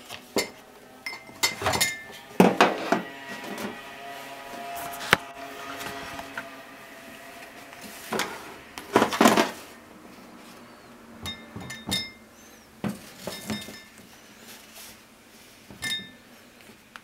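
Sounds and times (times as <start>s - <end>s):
plastic bowls clattering on steel: 0.2s - 3.8s, 8.1s - 9.7s, 12.8s - 14.0s.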